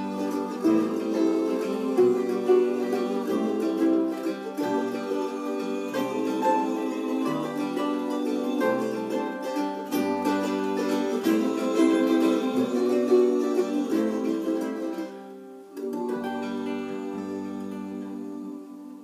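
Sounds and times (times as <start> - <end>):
plucked double bass: 0.0 - 15.1
acoustic guitar: 0.0 - 19.0
mandolin: 0.0 - 19.0.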